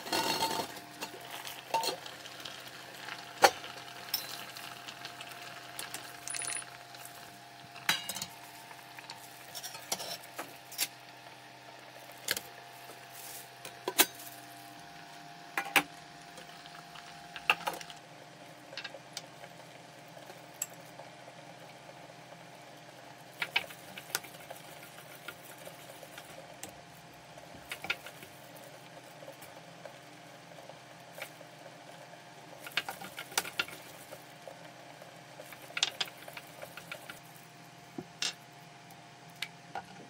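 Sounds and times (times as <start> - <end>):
metal pots and lids clinking: 0.0 - 1.1, 1.7 - 2.0, 3.4 - 4.6, 7.8 - 8.4
faint steady hum: 0.0 - 40.0.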